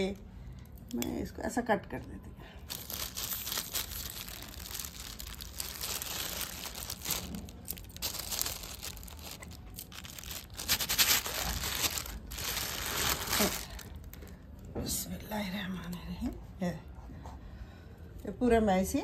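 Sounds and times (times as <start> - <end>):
plastic sheet crinkling: 2.6 - 14.4.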